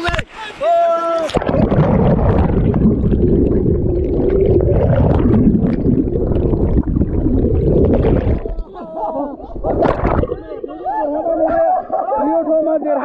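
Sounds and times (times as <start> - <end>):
bubbles popping underwater: 1.4 - 8.7, 9.5 - 11.0
muffled underwater rumble: 1.4 - 8.8, 9.4 - 11.0.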